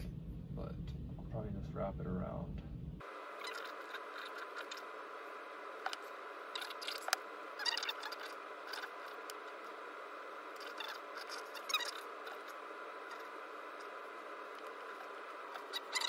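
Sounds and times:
steady background hum: 0:00.0 - 0:16.0
wires rustling and scraping: 0:03.3 - 0:16.0.

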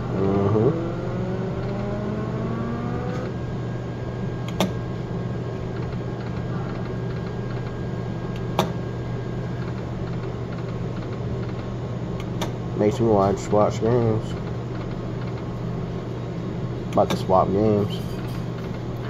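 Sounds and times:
rising electronic tone: 0:00.0 - 0:03.3
steady low hum: 0:00.0 - 0:19.0.

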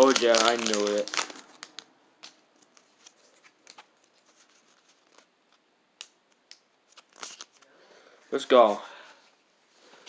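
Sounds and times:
trading cards being handled: 0:00.0 - 0:07.7.

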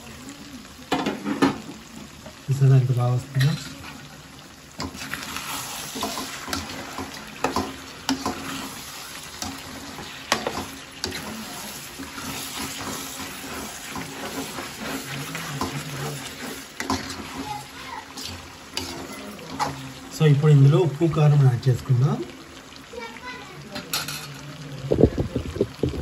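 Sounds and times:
curry sizzling in oil: 0:00.0 - 0:26.0.

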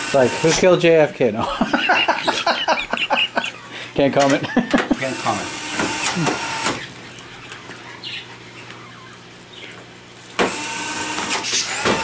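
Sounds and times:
electric screwdriver motor whining: 0:05.0 - 0:07.0, 0:10.4 - 0:12.0.

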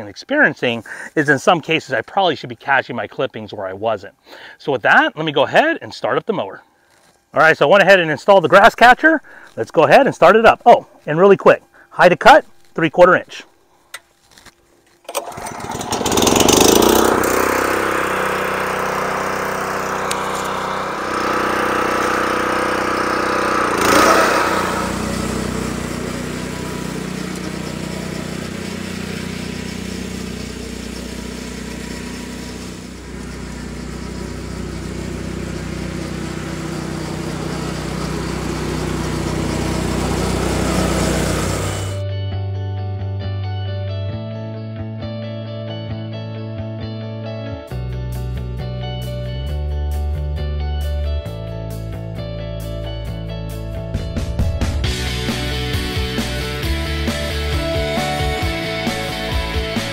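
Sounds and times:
mower engine starting and running: 0:14.3 - 0:42.1, 0:53.8 - 0:59.9.

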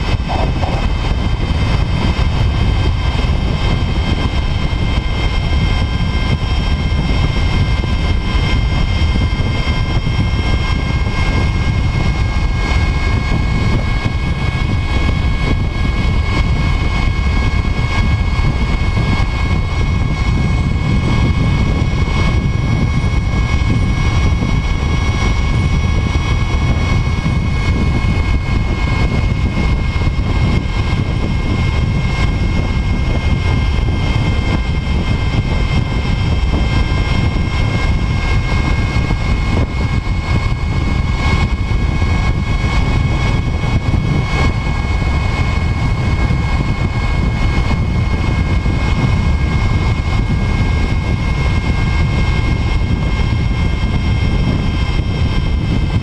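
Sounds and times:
road rumble: 0:00.0 - 0:02.3
electric motor high whine: 0:00.0 - 0:56.0
wind rush on microphone: 0:00.0 - 0:56.0.

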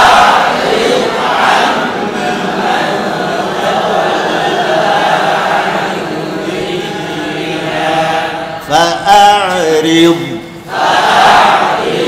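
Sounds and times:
group of men chanting in unison: 0:00.0 - 0:12.0
man reciting melodically: 0:02.2 - 0:10.7.

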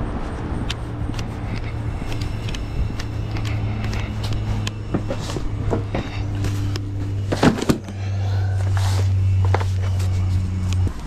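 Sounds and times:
vehicle engine droning: 0:00.0 - 0:11.0.

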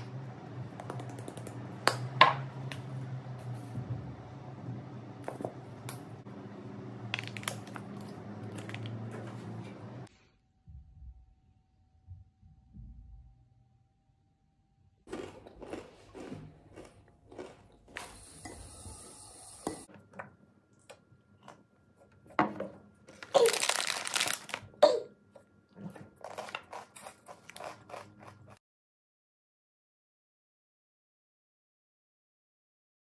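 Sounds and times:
plastic bag crinkling: 0:23.1 - 0:24.8.

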